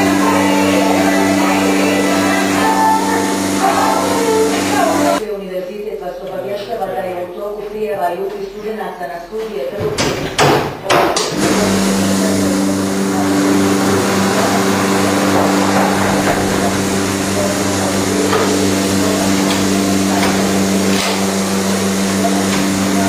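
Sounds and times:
vacuum pump humming: 0:00.0 - 0:05.2, 0:11.2 - 0:23.0.

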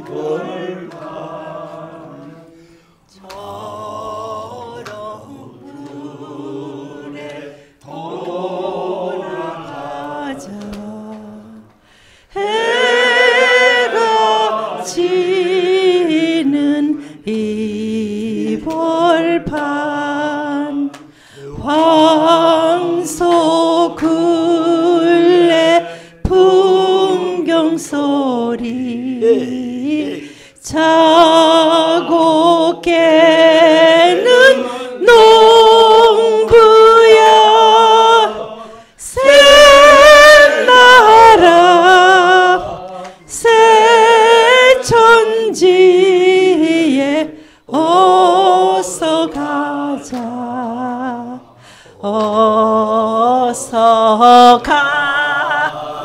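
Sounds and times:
woman singing unaccompanied: 0:09.8 - 0:11.7, 0:12.4 - 0:21.0, 0:21.6 - 0:55.8.

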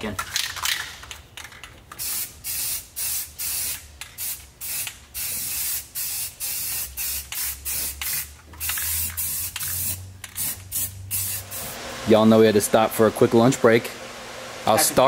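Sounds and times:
spray paint can hissing: 0:01.9 - 0:11.8.

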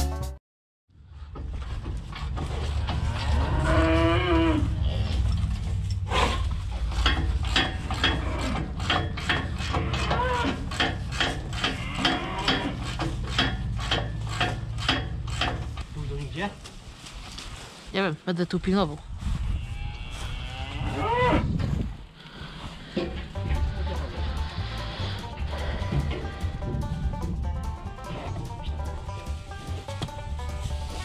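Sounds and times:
bulls mooing: 0:02.5 - 0:15.4, 0:19.8 - 0:21.4, 0:23.1 - 0:30.5
sharp metallic knocks: 0:06.8 - 0:15.8
steady low hum: 0:23.0 - 0:31.0.

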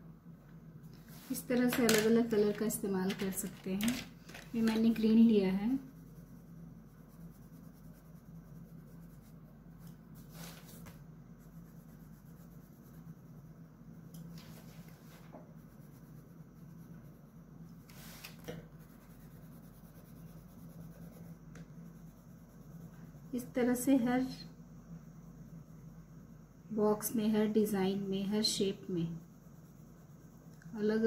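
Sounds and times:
pencil rubbing on paper: 0:05.0 - 0:13.5, 0:14.6 - 0:23.5
pencil swishes: 0:07.2 - 0:11.0, 0:17.8 - 0:21.3.

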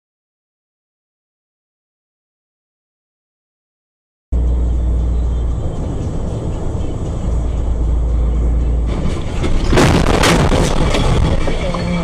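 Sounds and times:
truck driving rumble: 0:04.3 - 0:12.0
music playing: 0:04.4 - 0:12.0
sharp bangs: 0:08.9 - 0:11.6.

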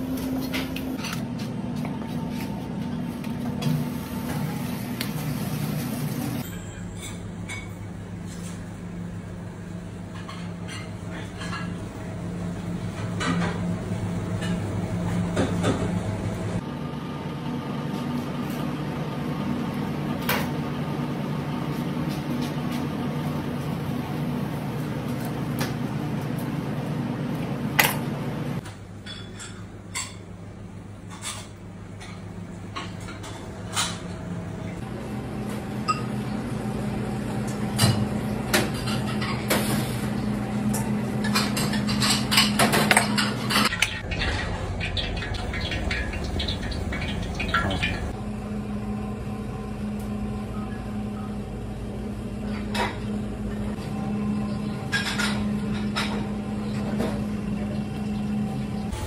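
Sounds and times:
steady low hum: 0:30.0 - 0:59.0.

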